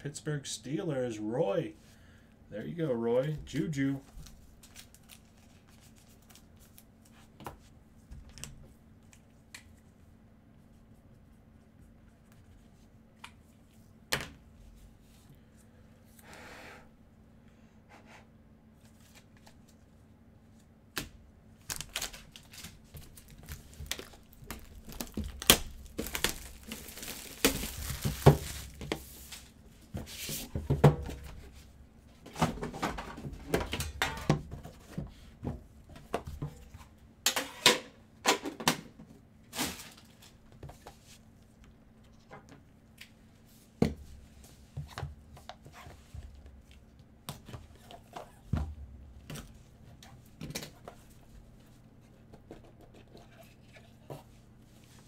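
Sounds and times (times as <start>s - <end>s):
wrapper crinkling and tearing: 21.6s - 28.8s.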